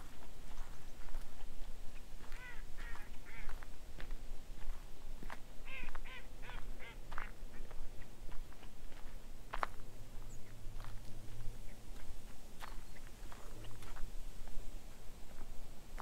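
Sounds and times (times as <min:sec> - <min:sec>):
water birds calling: 0:05.6 - 0:08.1.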